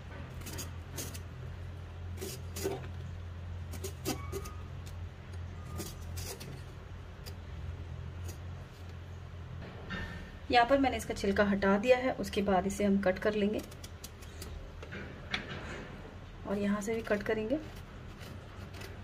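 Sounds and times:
peeler scraping eggplant skin: 0.1s - 9.0s, 12.6s - 14.7s, 16.8s - 19.0s.

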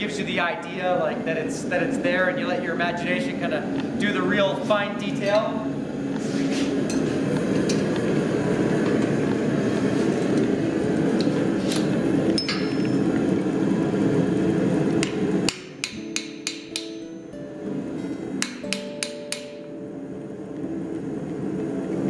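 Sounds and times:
gas forge burner roar: 0.0s - 22.0s
hammer striking chisel: 15.0s - 17.1s, 18.4s - 19.7s.

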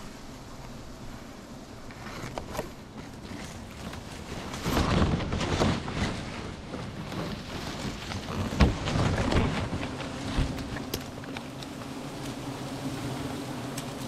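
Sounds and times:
tree branches and leaves rustling: 0.0s - 14.0s.

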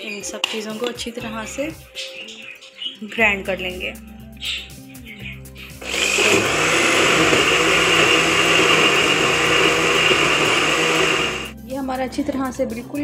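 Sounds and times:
blender running: 5.8s - 11.5s.

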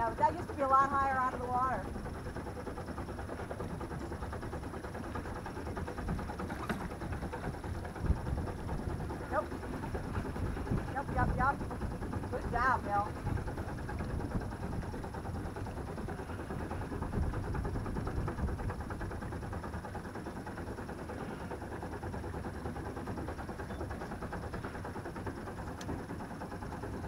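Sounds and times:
boat engine running steadily: 0.0s - 27.0s.

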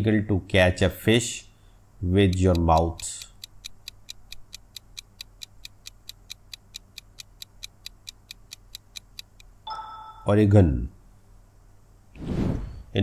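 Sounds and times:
countdown timer ticking: 2.3s - 9.9s.

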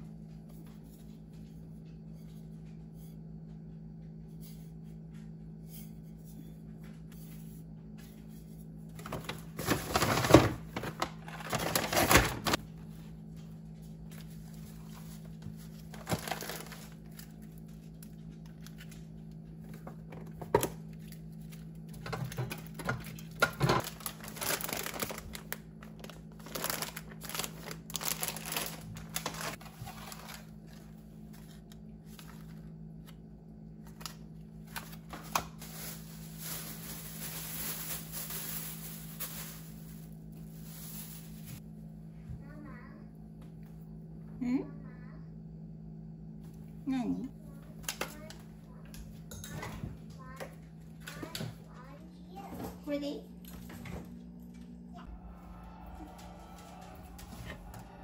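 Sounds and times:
low hum: 0.0s - 47.6s, 50.7s - 58.0s
paper bag rustling: 9.0s - 12.6s, 14.2s - 17.5s, 23.7s - 32.6s, 34.7s - 41.6s.

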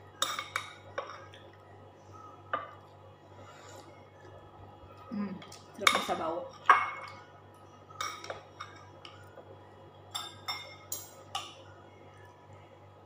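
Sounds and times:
cutlery clinking on bowls: 0.2s - 1.4s, 5.5s - 7.3s, 7.9s - 9.4s, 10.1s - 11.6s.

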